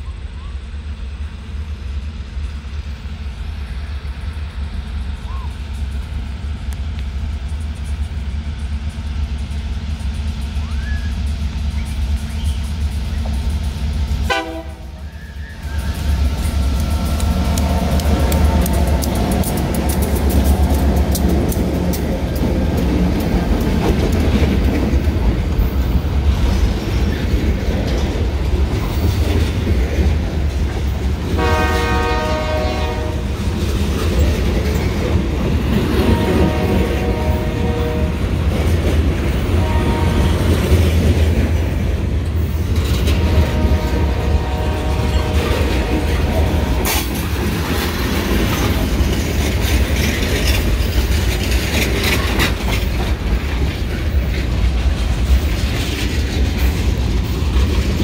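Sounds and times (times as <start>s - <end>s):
freight cars rumbling on rails: 0.0s - 58.0s
locomotive air horn blasts: 14.3s - 15.6s, 31.4s - 33.3s, 36.0s - 38.2s, 39.6s - 40.6s, 43.1s - 47.2s.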